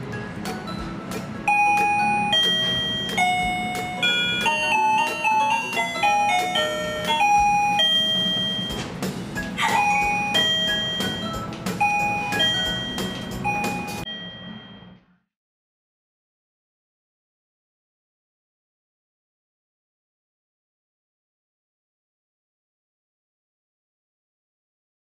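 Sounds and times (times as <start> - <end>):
electronic doorbell chime tunes: 1.4 - 8.8, 9.6 - 15.0.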